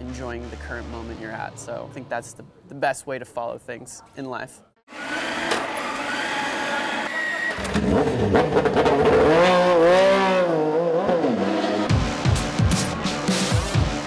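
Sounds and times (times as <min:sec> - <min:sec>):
motorcycle engine revving: 0:07.5 - 0:12.2.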